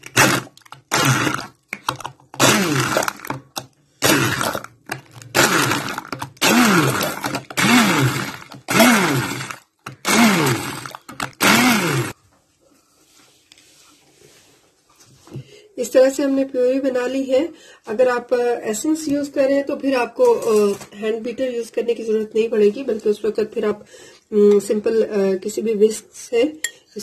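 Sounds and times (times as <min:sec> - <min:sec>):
stick blender pulsing: 0:00.0 - 0:12.2.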